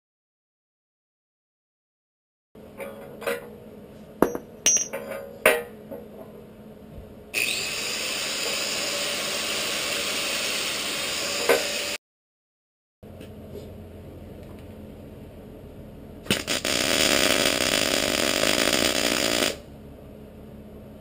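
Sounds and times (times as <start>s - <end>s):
metal clinks on steel: 4.2s - 5.0s
angle grinder grinding metal: 7.4s - 12.0s.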